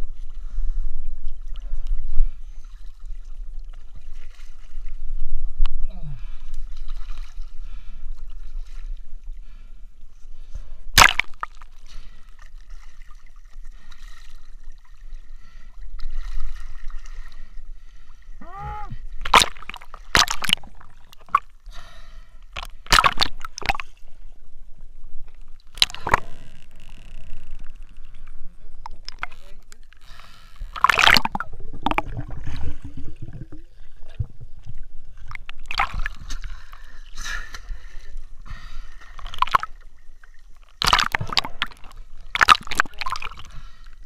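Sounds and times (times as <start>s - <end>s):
water gurgle: 10.8s - 44.0s
feet splashing in water: 40.8s - 43.5s.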